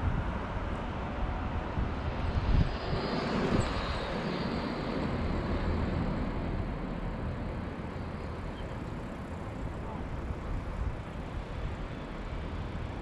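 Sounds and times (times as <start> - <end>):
wind rushing over microphone: 0.0 - 8.5
bicycle road noise: 0.0 - 13.0
light traffic: 0.0 - 13.0.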